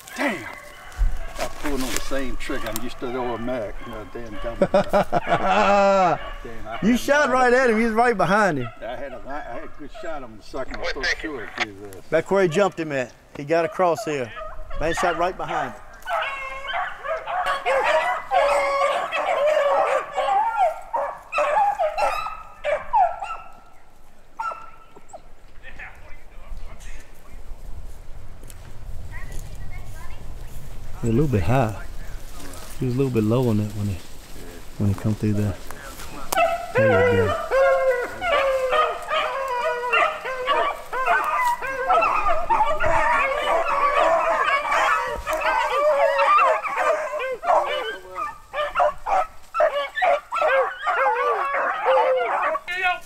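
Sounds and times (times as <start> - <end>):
dogs howling: 0.0 - 11.6, 13.5 - 23.8, 24.4 - 25.3, 35.2 - 53.0
dogs barking: 0.0 - 12.9, 13.5 - 25.3, 34.8 - 53.0
hounds baying: 0.0 - 25.4, 31.0 - 53.0.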